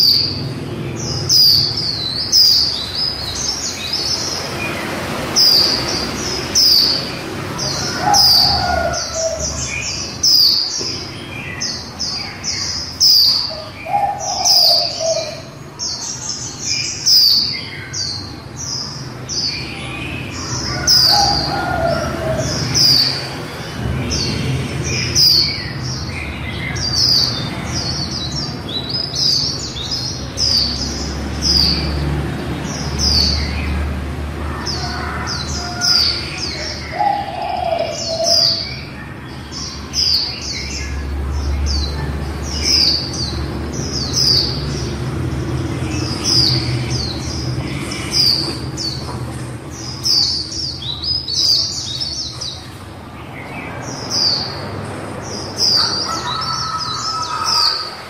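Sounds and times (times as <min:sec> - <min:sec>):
bird chirping song: 0:00.0 - 0:58.0.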